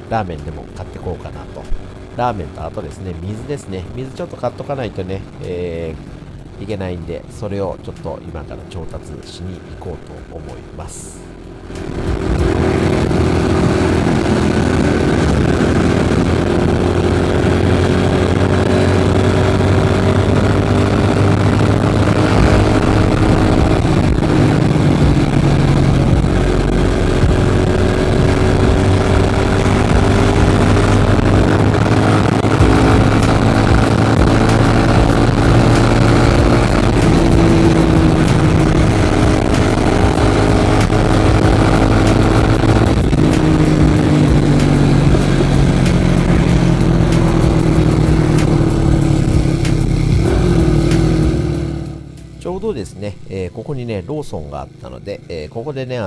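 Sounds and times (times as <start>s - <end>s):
small motorcycle engine running: 11.2s - 52.4s.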